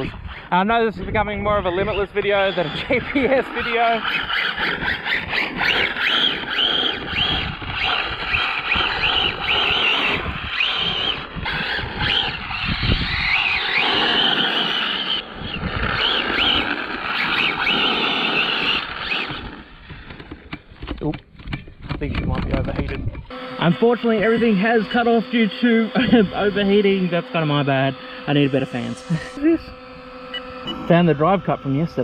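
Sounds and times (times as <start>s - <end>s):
tyres and wind rushing: 0.0s - 23.3s
electric motor whining: 1.2s - 20.9s, 23.2s - 32.0s.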